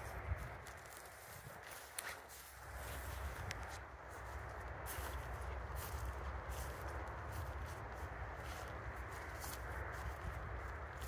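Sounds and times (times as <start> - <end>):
footsteps: 0.0 - 11.0
low steady rumble: 2.3 - 11.0.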